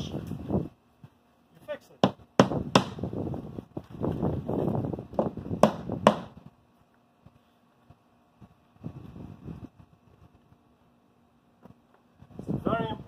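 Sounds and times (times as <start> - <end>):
hammer striking nail: 2.0 - 3.0, 5.6 - 6.4.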